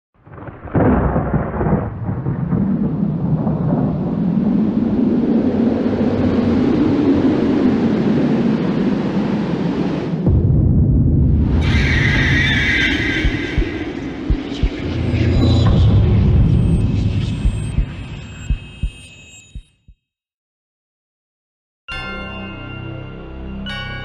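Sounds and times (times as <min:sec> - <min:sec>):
low thunder-like rumble: 0:00.2 - 0:19.0.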